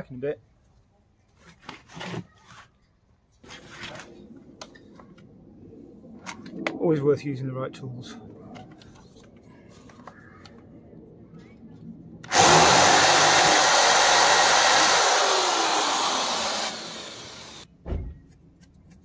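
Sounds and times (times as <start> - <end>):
power drill drilling metal: 12.3 - 17.7.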